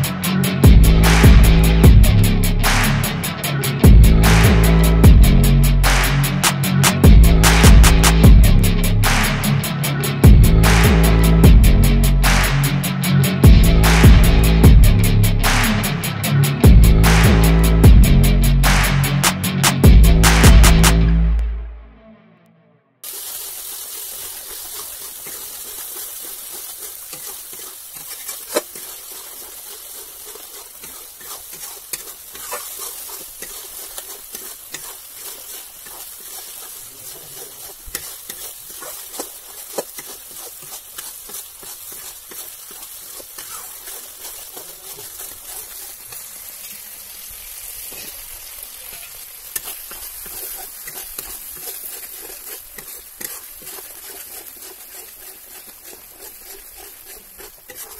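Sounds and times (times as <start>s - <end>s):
spices sizzling in oil: 0.0s - 9.3s, 23.0s - 57.9s
spatula scraping and tapping a pan: 24.1s - 46.8s, 47.8s - 57.9s.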